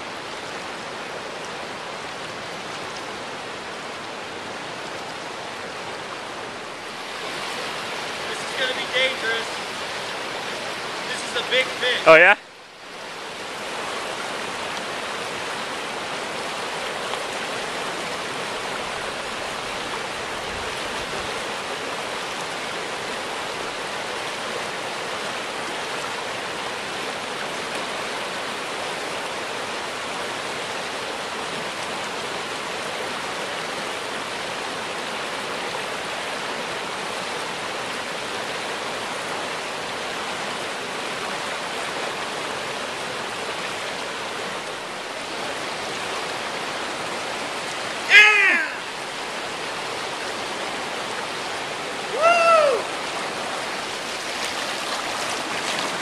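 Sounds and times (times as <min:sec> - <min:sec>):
river rushing over rocks: 0:00.0 - 0:56.0.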